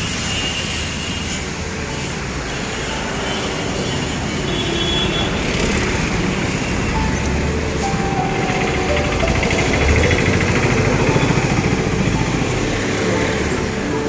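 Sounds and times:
street traffic rumble: 0.0s - 14.0s.

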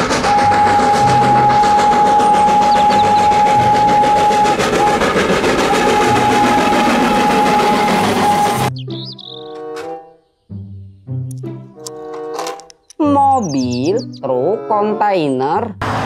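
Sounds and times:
steam locomotive whistle: 0.0s - 8.7s
train running noise: 0.0s - 8.7s.

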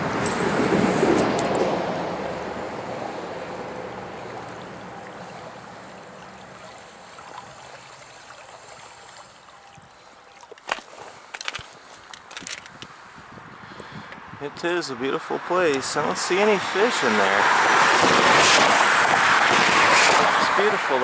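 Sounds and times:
river water rushing: 0.0s - 11.4s.

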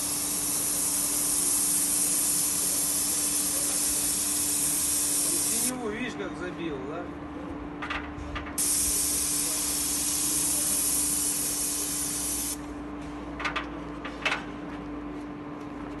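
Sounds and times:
paint spray gun hissing: 0.0s - 5.7s, 8.6s - 12.6s
steady hum: 0.0s - 6.3s.

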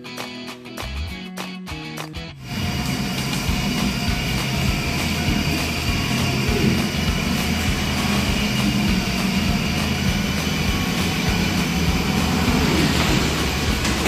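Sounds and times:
plastic wheels rolling on tiles: 12.0s - 14.0s.

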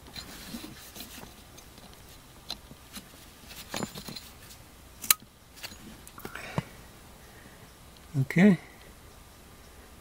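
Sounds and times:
gloved hands rustling: 0.0s - 6.8s.

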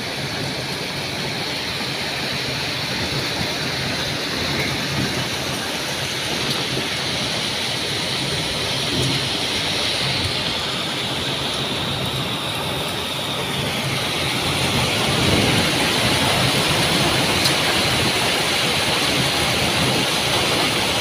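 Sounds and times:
heavy rain on grass and leaves: 0.0s - 21.0s.

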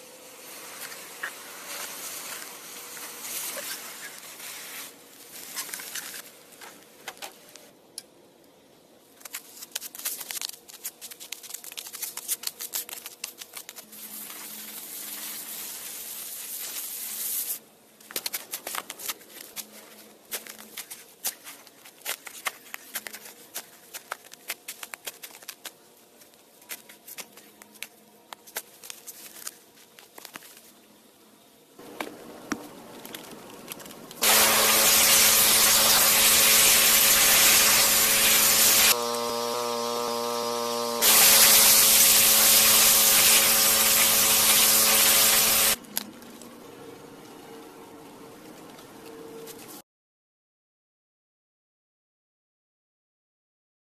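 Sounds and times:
molten metal hissing and crackling: 0.1s - 6.9s, 31.8s - 45.8s
shovel scraping dry soil: 34.2s - 45.8s.

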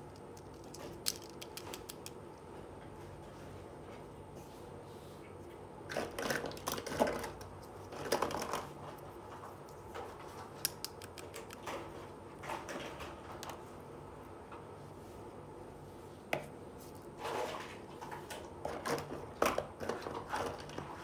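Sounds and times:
plastic toy utensils clicking: 0.2s - 2.2s.

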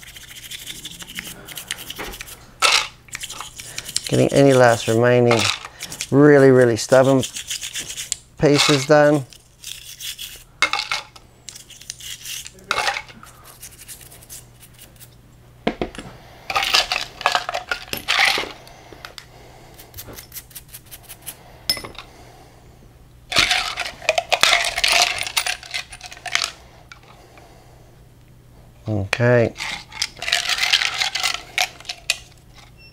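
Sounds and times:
metal parts clinking against glass: 21.7s - 22.0s, 23.4s - 26.5s.

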